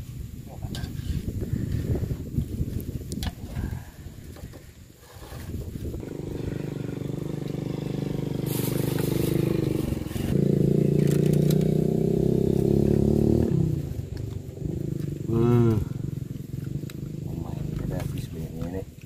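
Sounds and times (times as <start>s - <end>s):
engine humming: 5.0s - 19.0s.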